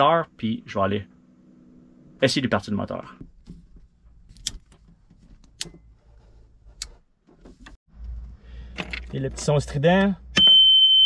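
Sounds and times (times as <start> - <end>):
steady low hum: 0.0 - 9.8.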